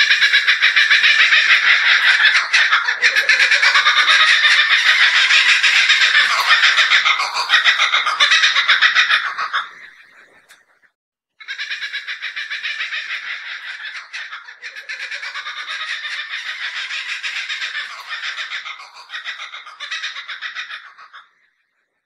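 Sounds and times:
kookaburra laughing call: 0:00.0 - 0:10.5, 0:11.4 - 0:21.3.

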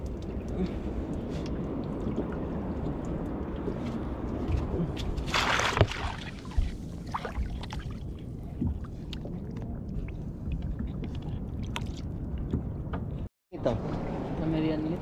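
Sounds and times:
water lapping against boat: 0:00.0 - 0:14.3
fish splashing into water: 0:05.3 - 0:08.0.

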